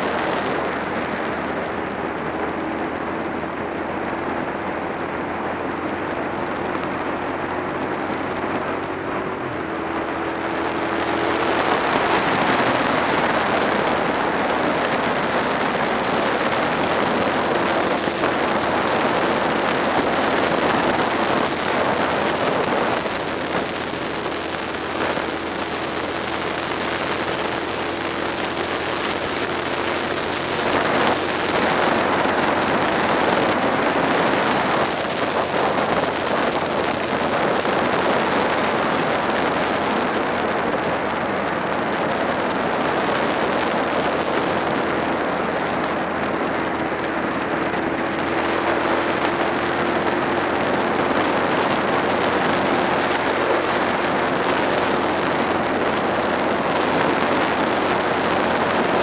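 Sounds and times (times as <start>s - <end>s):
motorcycle engine cruising: 0.0s - 59.0s
wind rushing over microphone: 0.0s - 59.0s.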